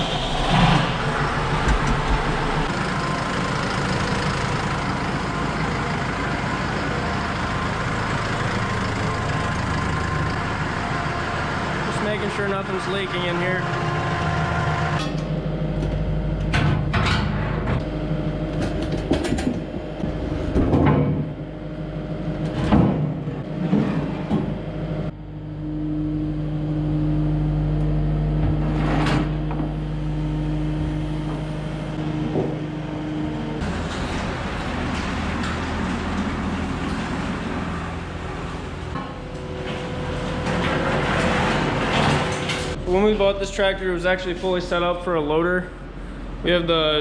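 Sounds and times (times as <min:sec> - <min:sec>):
steady hum: 0:00.0 - 0:03.8
machine engine droning: 0:00.0 - 0:47.0
metal clanks and knocks: 0:16.4 - 0:17.8, 0:18.5 - 0:21.4.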